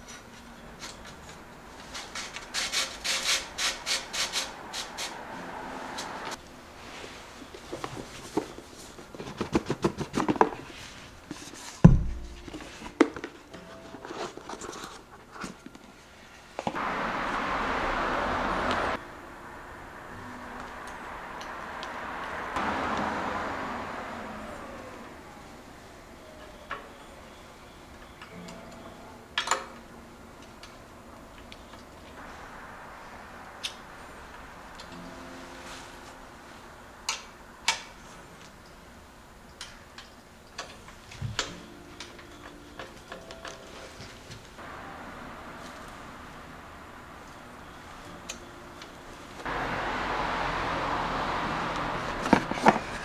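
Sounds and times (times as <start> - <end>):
loud dull thump: 11.8 - 12.4.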